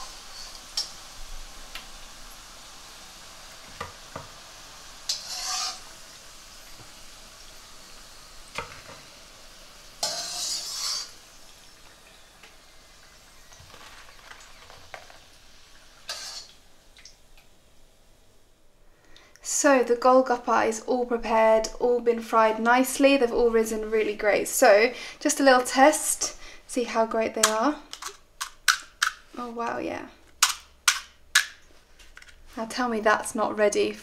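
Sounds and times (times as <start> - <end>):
deep-frying sizzle: 0.0 - 17.7.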